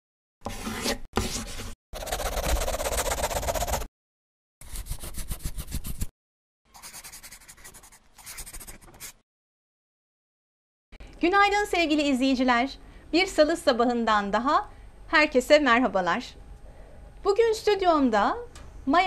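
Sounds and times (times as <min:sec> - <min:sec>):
scribbling on paper: 0:02.0 - 0:03.9, 0:04.6 - 0:06.1, 0:06.7 - 0:09.2.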